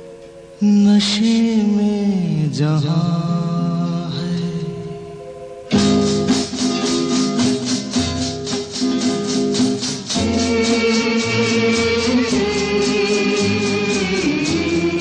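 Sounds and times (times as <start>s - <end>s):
strummed guitar chords: 0.0s - 15.0s
shaker beat: 5.7s - 15.0s.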